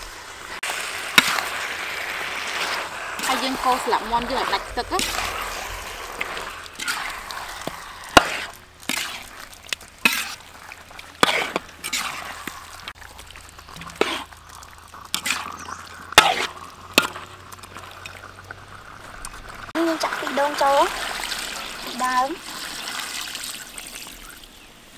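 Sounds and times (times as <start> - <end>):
metal utensil scraping a wok: 0.6 - 19.2.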